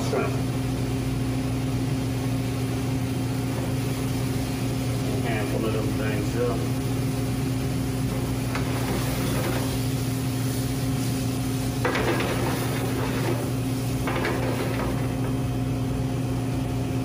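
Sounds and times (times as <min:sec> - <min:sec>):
steady low hum: 0:00.0 - 0:17.0
shrimp sizzling in a pan: 0:07.2 - 0:15.6.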